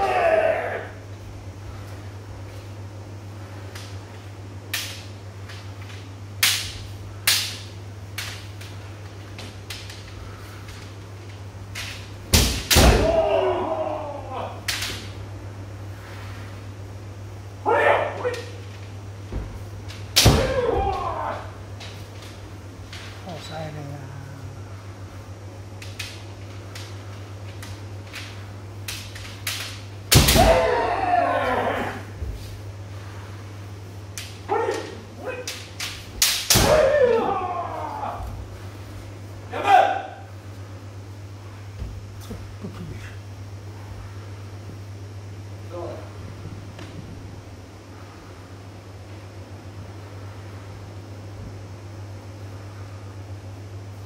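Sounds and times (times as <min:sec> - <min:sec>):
steady low hum: 0:00.0 - 0:54.0
bamboo swords cracking: 0:04.7 - 0:10.9, 0:11.7 - 0:15.2, 0:18.2 - 0:23.1, 0:25.8 - 0:31.9, 0:34.1 - 0:38.4.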